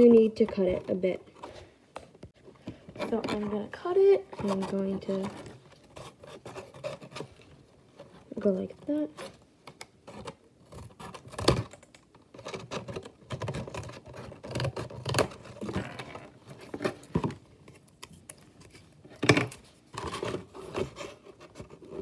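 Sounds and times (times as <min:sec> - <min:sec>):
scissors cutting cardboard: 0:04.3 - 0:09.4, 0:10.0 - 0:22.0.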